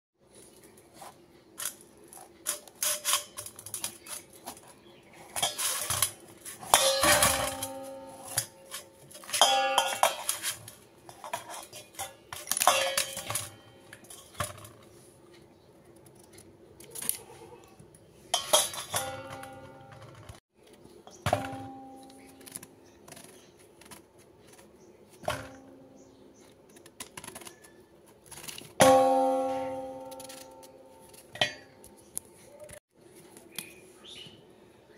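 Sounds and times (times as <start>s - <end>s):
clanks against steel bowl: 6.7s - 10.6s, 11.2s - 14.7s, 18.4s - 20.3s.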